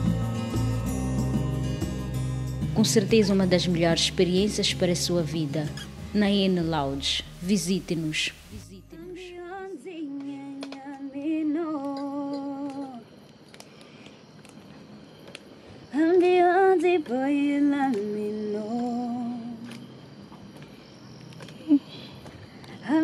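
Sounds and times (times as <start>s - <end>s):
person humming a melody: 8.5s - 13.1s.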